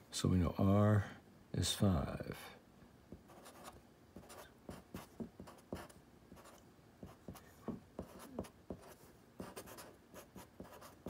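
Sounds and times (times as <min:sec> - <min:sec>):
marker writing on paper: 0:03.3 - 0:11.0.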